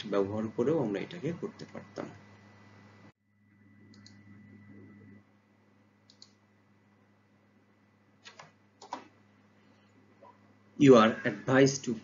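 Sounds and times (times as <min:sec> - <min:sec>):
low steady hum: 0:00.0 - 0:12.0
computer mouse clicks: 0:03.9 - 0:04.2, 0:06.0 - 0:06.4, 0:08.2 - 0:09.1.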